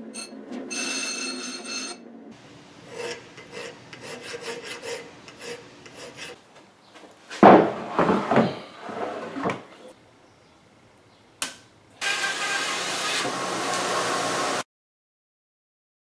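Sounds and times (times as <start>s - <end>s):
bench grinder grinding steel: 2.8s - 6.4s, 12.0s - 14.6s
file rasping on steel: 2.8s - 6.4s
wood block thumping on workbench: 7.4s - 8.6s.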